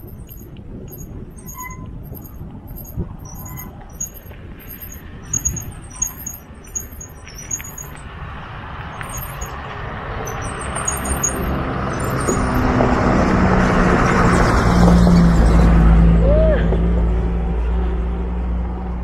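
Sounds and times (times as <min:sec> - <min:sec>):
high repeated chirps: 0:00.0 - 0:08.0, 0:09.0 - 0:09.6, 0:10.3 - 0:12.7
bus passing: 0:00.0 - 0:19.0.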